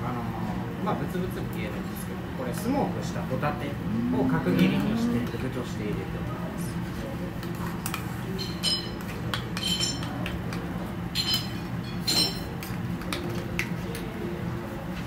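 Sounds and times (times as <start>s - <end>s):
steady low hum: 0.0s - 15.0s
spoons clinking against saucepan: 8.4s - 10.3s, 11.2s - 12.8s.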